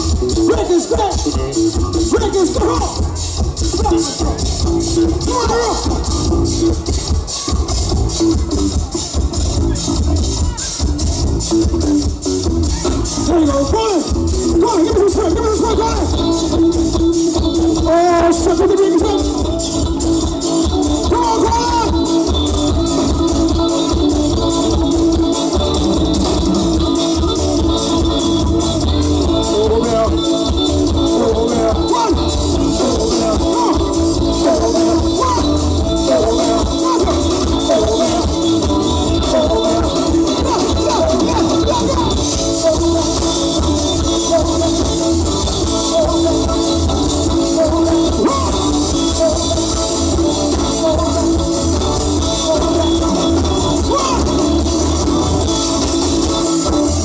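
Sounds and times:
bass guitar: 0:00.0 - 0:57.0
drum kit: 0:00.0 - 0:57.0
electric guitar: 0:00.0 - 0:57.0
live band playing: 0:00.0 - 0:57.0
man singing into a microphone: 0:00.3 - 0:06.4, 0:12.7 - 0:24.0, 0:27.6 - 0:55.7.

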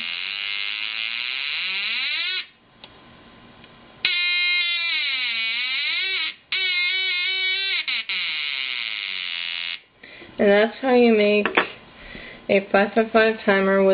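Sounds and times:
buzzing tone sliding in pitch: 0:00.0 - 0:02.5, 0:04.1 - 0:09.8.

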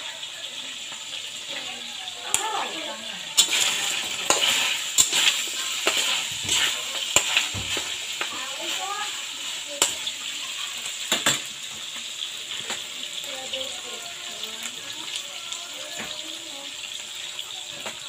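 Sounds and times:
meat sizzling in a wok: 0:00.0 - 0:18.0
metal spatula stirring: 0:03.3 - 0:11.4.

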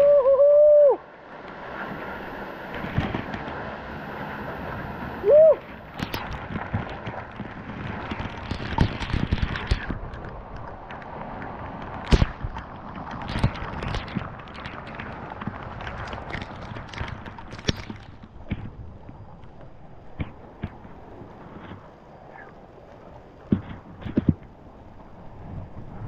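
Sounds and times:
man whooping yell: 0:00.0 - 0:01.0, 0:05.2 - 0:05.6.

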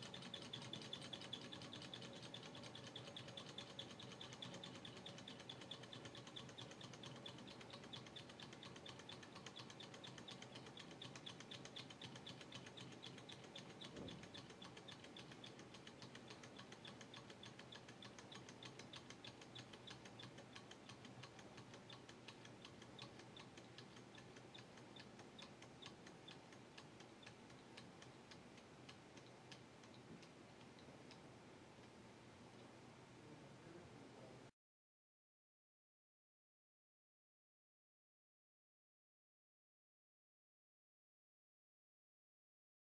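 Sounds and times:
small engine fast mechanical ticking: 0:00.0 - 0:28.4.

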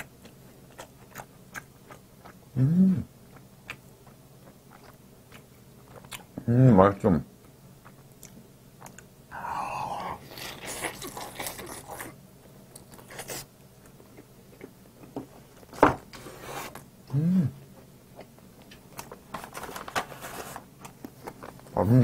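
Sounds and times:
chewing and biting: 0:00.0 - 0:02.4, 0:03.3 - 0:06.3
person humming: 0:02.6 - 0:03.1, 0:09.3 - 0:10.3, 0:17.1 - 0:17.6.

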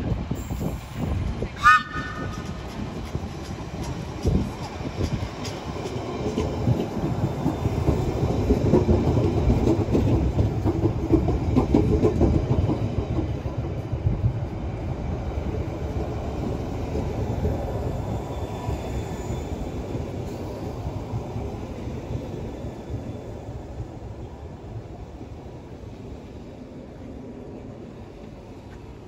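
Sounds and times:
train wheels rumbling: 0:00.0 - 0:29.0
wheels clacking over rail joints: 0:01.8 - 0:13.9.

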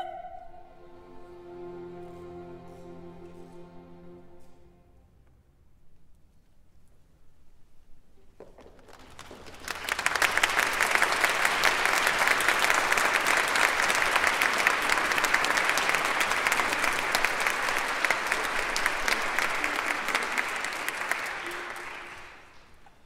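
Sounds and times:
audience applauding: 0:08.6 - 0:23.0.

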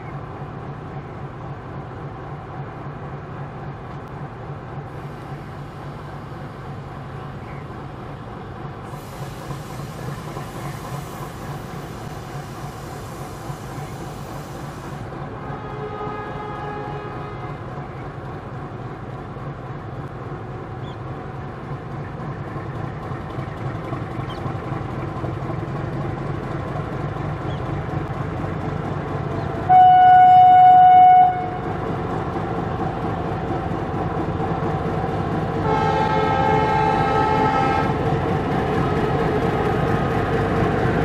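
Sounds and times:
diesel locomotive engine drone: 0:00.0 - 0:41.0
locomotive horn blast: 0:15.4 - 0:17.6, 0:29.7 - 0:31.7, 0:35.6 - 0:38.0.

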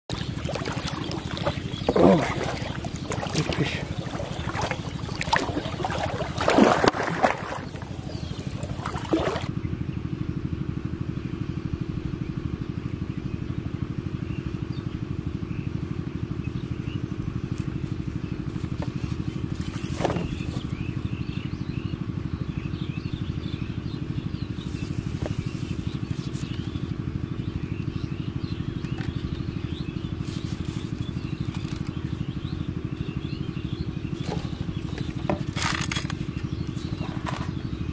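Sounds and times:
fish splashing in water: 0:00.1 - 0:09.5
pulsing low drone: 0:00.1 - 0:15.3.

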